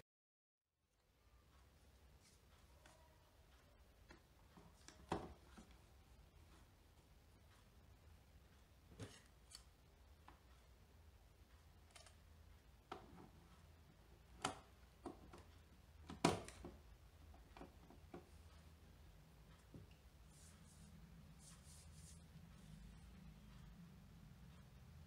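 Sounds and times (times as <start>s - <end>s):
plastic clicks and knocks: 14.3s - 16.8s.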